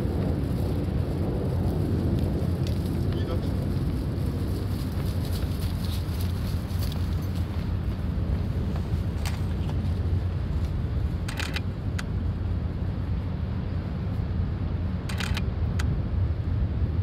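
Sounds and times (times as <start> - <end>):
wind buffeting microphone: 0.0 - 17.0
short clicks: 15.0 - 15.9.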